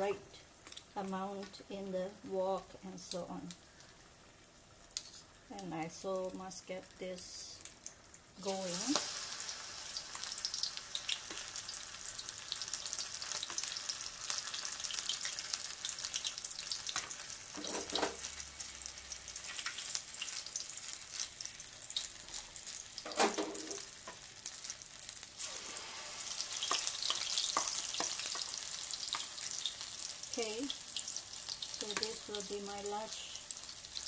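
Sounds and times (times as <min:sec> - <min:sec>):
batter deep-frying in oil: 0:00.0 - 0:34.0.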